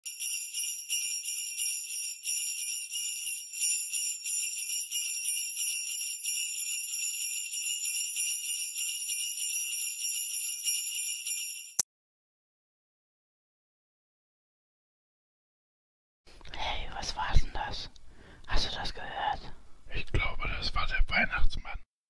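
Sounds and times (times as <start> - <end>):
sleigh bells jingling: 0.0 - 11.8.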